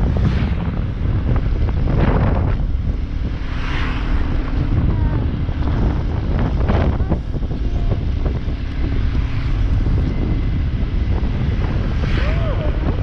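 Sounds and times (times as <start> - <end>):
motorcycle engine running: 0.0 - 13.0
wind rushing over microphone: 0.0 - 13.0.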